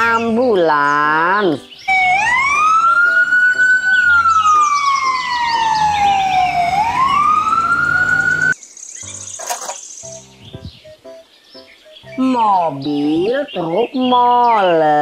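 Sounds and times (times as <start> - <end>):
ambulance siren wailing: 1.8 - 8.6.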